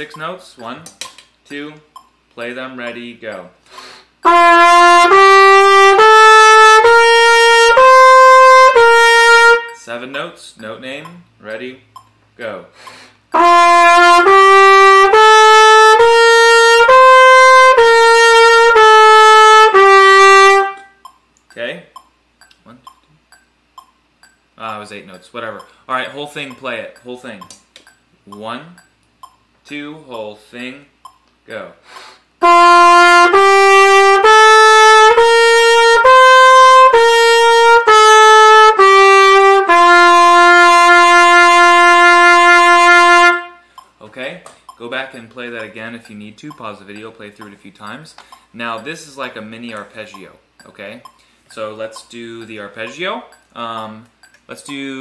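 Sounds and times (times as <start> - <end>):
trumpet playing held notes: 4.2 - 9.9, 13.3 - 21.0, 32.4 - 43.6.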